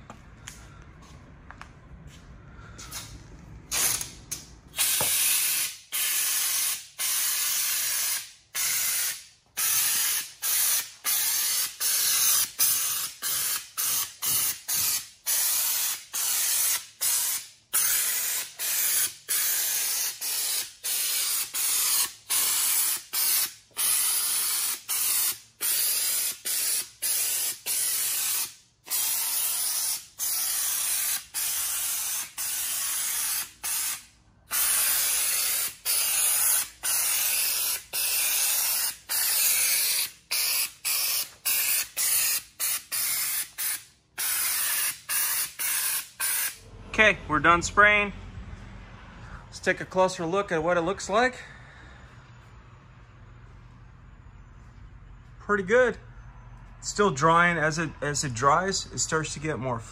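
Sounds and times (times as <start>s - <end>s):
spray gun hissing: 4.8s - 46.6s.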